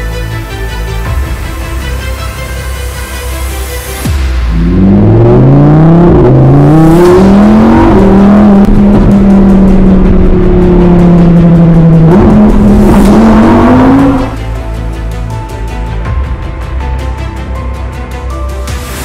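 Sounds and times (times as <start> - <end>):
race car engine accelerating: 4.5 - 14.4.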